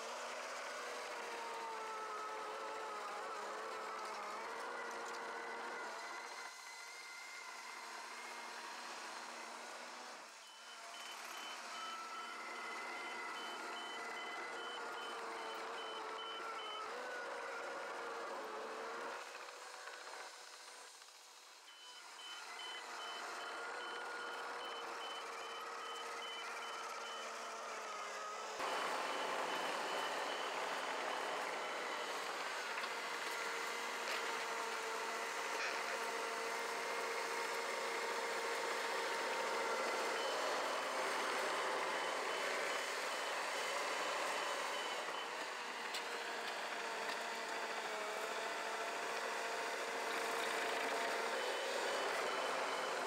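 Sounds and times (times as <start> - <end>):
reverse alarm beeping: 10.4 - 16.8, 21.7 - 27.7
dozer diesel engine running: 21.7 - 53.0.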